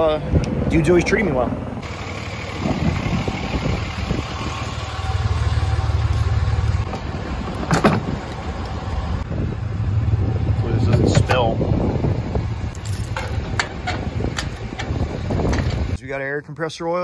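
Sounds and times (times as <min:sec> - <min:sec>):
vehicle engine rumbling: 0:00.0 - 0:16.1.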